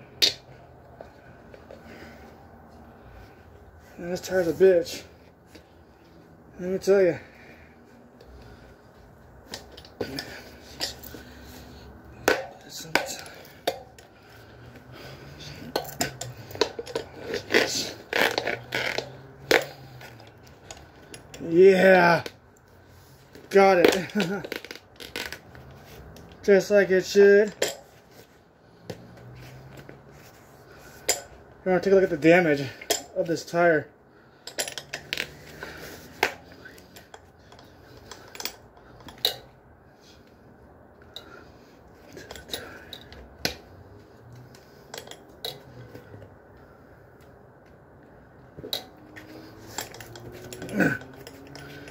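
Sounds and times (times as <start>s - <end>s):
bicycle tyre rubbing and scraping on rim: 17.0s - 20.2s.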